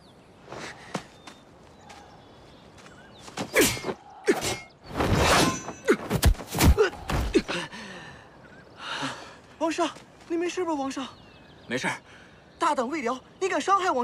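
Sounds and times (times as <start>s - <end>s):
fighters grunting: 5.7s - 7.8s
bodies thudding on ground: 6.0s - 7.5s.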